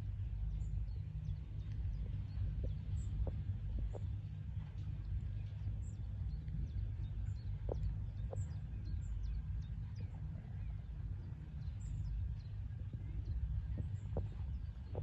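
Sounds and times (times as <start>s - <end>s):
small birds chirping: 0.0s - 15.0s
steady low rumble: 0.0s - 15.0s.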